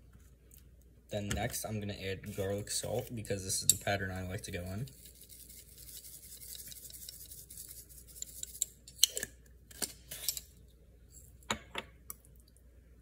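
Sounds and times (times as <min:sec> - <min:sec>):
salt shaker rattle: 0:04.8 - 0:09.1
shaker and fork clicks: 0:05.0 - 0:09.2.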